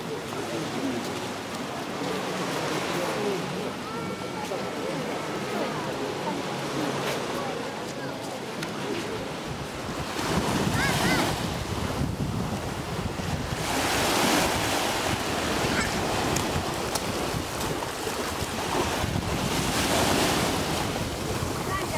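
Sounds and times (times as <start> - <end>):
waves breaking on a sandy beach: 0.0 - 21.9
wind buffeting microphone: 9.1 - 21.9.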